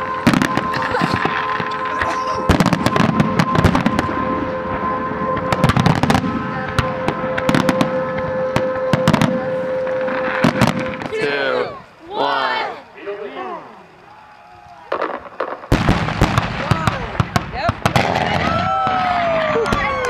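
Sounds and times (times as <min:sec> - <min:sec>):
fireworks bangs and crackles: 0:00.0 - 0:11.2, 0:14.1 - 0:20.0
steady tone: 0:00.0 - 0:14.0.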